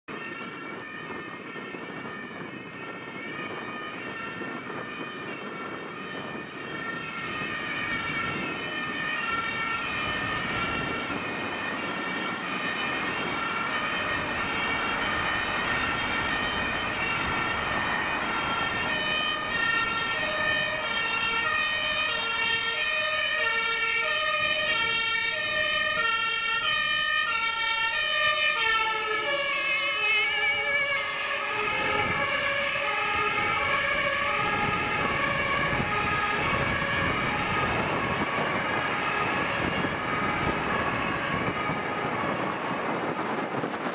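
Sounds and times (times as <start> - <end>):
city traffic noise: 0.0 - 43.9
two-tone emergency sirens: 0.0 - 43.9
lower two-tone siren: 0.1 - 43.9.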